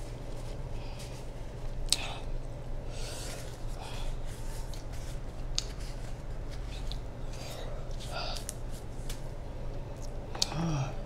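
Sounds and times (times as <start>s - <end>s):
steady low hum: 0.0s - 11.0s
soft chewing: 9.7s - 10.6s.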